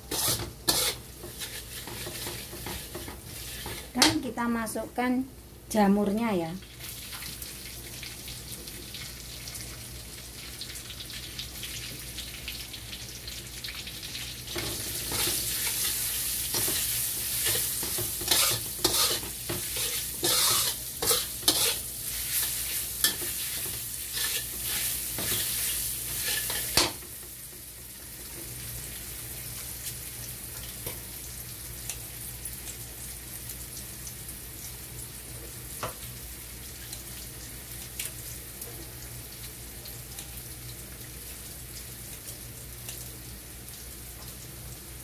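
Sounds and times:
spatula scraping a pan: 0.0 - 4.0, 14.6 - 27.0
mushrooms sizzling in a wok: 0.0 - 45.0.

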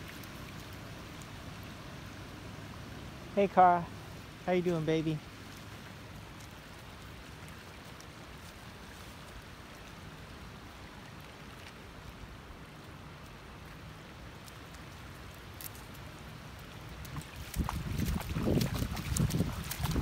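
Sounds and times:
rippling lake water: 0.0 - 20.0.

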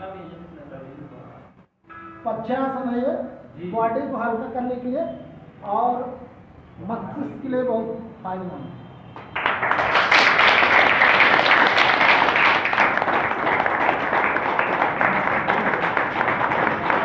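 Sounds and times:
audience applauding: 9.2 - 17.0.

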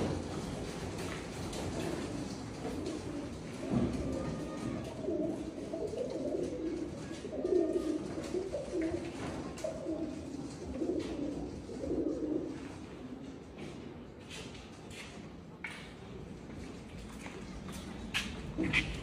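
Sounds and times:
pigeons cooing: 0.0 - 13.3.

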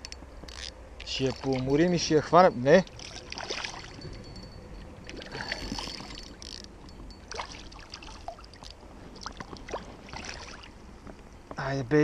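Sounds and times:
river water flowing and lapping: 0.1 - 11.5.

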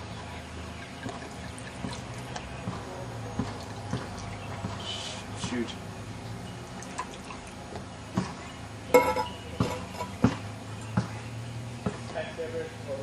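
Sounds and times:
glass bottles clinking: 8.9 - 10.2.

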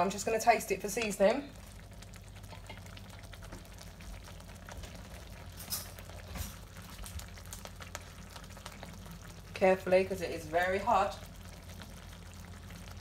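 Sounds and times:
sauce bubbles popping: 1.0 - 9.6, 11.2 - 13.0.

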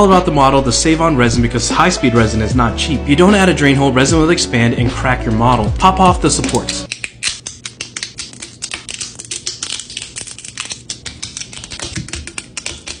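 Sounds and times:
scissors clipping: 6.4 - 13.0.

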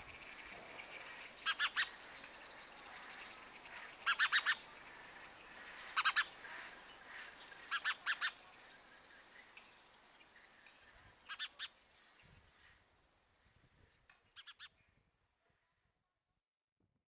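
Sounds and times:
sparrow chirping: 0.0 - 9.5, 11.3 - 11.8, 14.3 - 14.7.

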